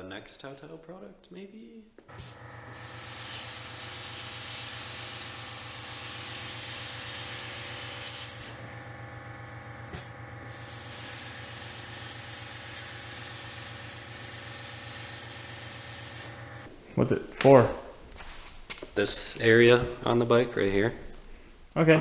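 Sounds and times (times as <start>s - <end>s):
plasma cutter hissing: 2.2s - 8.6s, 9.9s - 16.3s.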